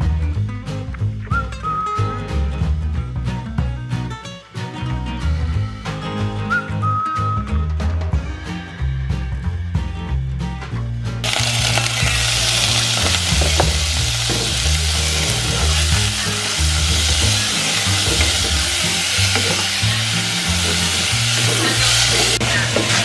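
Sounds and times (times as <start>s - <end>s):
background music with bass: 0.0s - 23.0s
meat sizzling in a pan: 11.2s - 23.0s.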